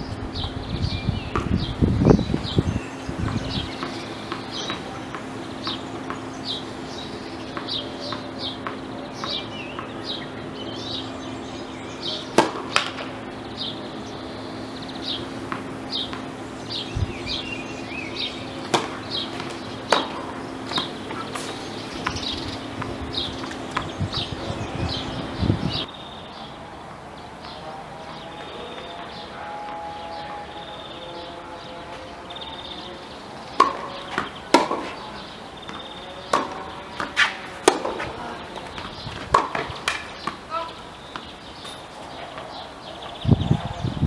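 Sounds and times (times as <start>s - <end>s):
steady low hum: 0.0s - 44.0s
tennis balls struck by rackets: 0.2s - 25.9s, 33.5s - 43.0s.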